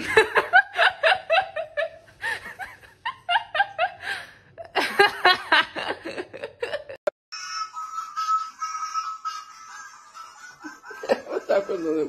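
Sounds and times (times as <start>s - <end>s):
person laughing: 10.3s - 12.0s.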